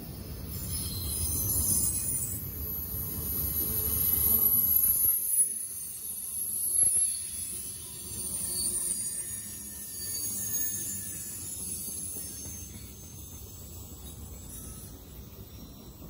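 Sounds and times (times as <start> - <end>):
train wheels rumbling on rails: 10.0 - 16.0.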